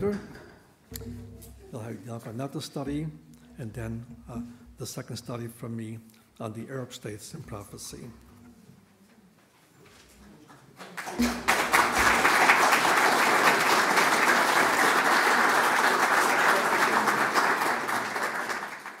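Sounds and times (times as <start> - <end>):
audience applauding: 10.8 - 19.0.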